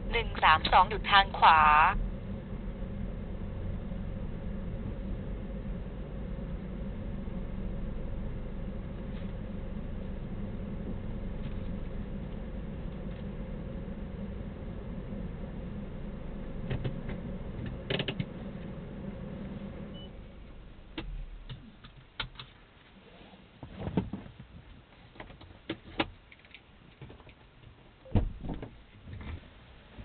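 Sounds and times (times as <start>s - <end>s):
car engine hum: 0.0s - 22.6s.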